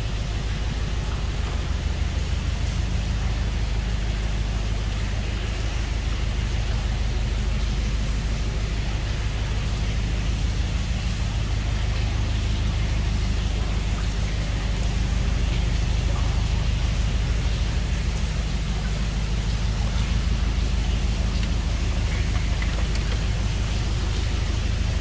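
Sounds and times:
boat diesel engine rumbling: 0.0 - 25.0.

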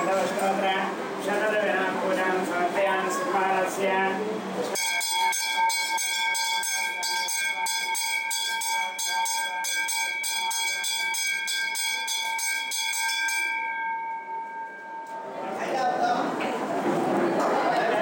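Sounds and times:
temple bell ringing: 4.7 - 16.0.

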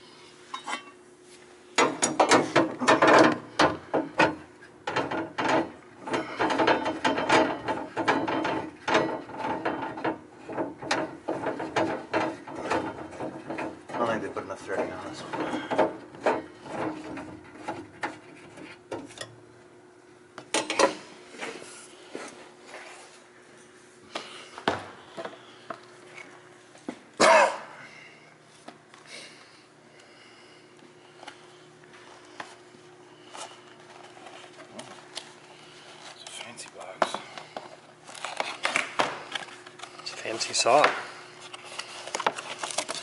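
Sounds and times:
steady low hum: 0.0 - 43.0
tools and parts clattering: 1.8 - 19.3.

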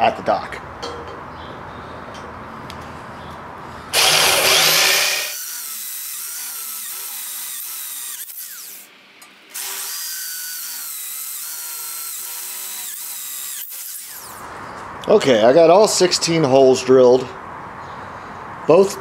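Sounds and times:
electric drill boring steel: 3.9 - 8.9, 9.5 - 14.4.

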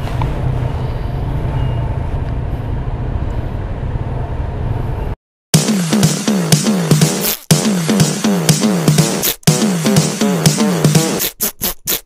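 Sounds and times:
electronic dance music: 5.5 - 12.0.

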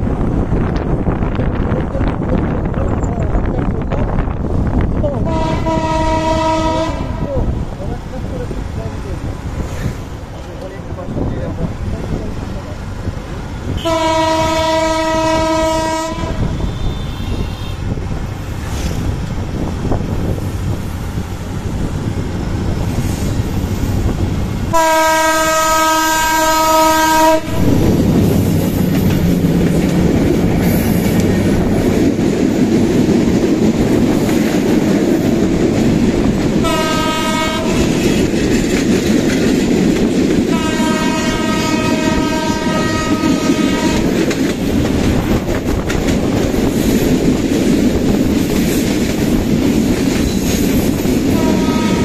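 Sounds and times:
train rumbling past: 0.0 - 52.0
diesel locomotive horn: 5.2 - 7.3, 13.7 - 18.0, 24.7 - 27.8, 36.6 - 38.2, 40.5 - 44.2, 51.3 - 52.0.

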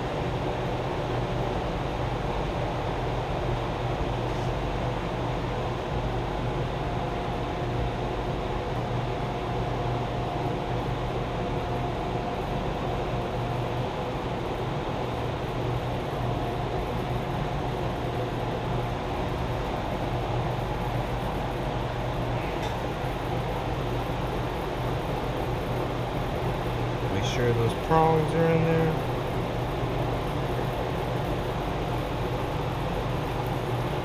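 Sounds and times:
faint high whine: 3.7 - 34.0.

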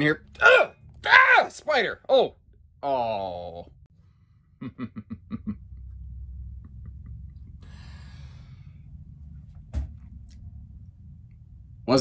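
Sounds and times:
low rumble: 2.4 - 12.0
long breathy exhale: 7.6 - 8.9.

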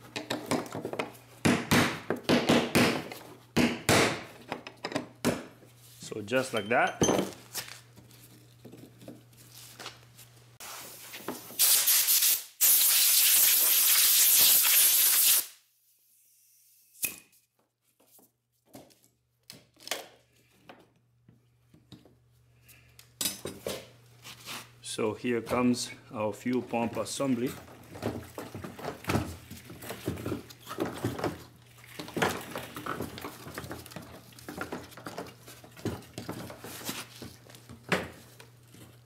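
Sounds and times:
tool handling clicks and knocks: 0.0 - 1.2, 4.4 - 5.6
pressurized spray hissing: 11.6 - 15.5.

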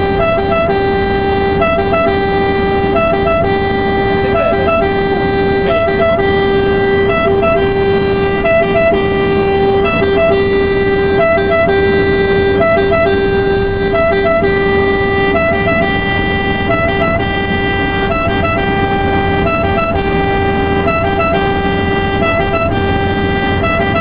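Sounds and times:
road noise inside cab: 0.0 - 24.0
two-tone ambulance siren: 0.0 - 24.0.

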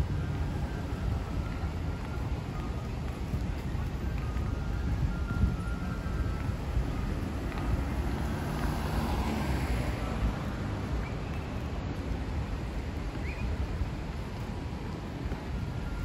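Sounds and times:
road traffic rumble: 0.0 - 16.0
vehicle passing: 6.7 - 12.4.

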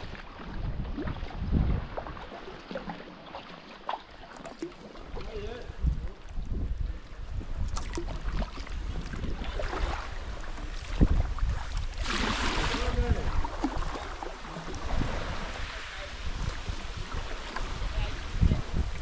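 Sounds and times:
wind on microphone: 0.0 - 2.4, 5.0 - 19.0
paddle splashes: 0.0 - 19.0
water lapping at hull: 0.0 - 19.0
wash of water: 7.7 - 19.0.

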